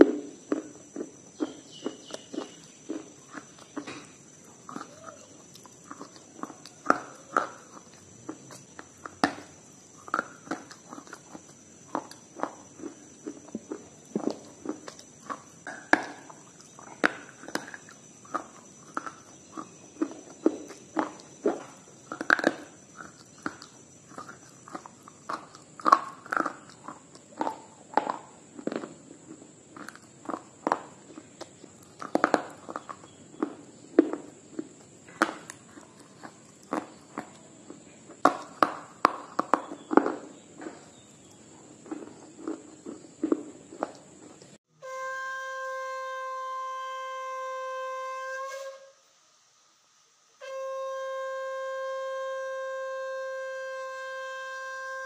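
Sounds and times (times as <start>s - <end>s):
crunching and chewing: 0.0s - 44.6s
conch shell blown: 44.7s - 55.0s.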